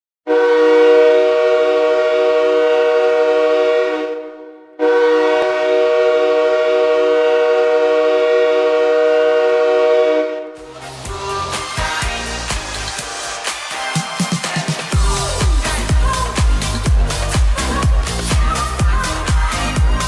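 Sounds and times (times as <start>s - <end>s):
arena goal horn blasts: 0.3s - 10.6s.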